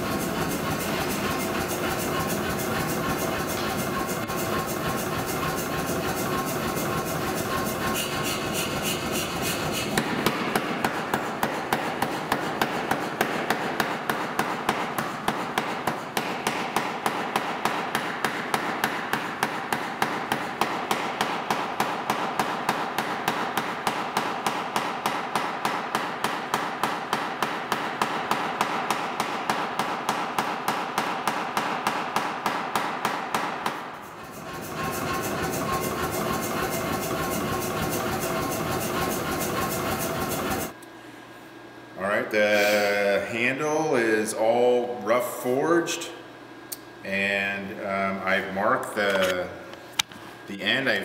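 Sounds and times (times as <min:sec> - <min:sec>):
power hammer striking hot steel: 0:00.0 - 0:40.8.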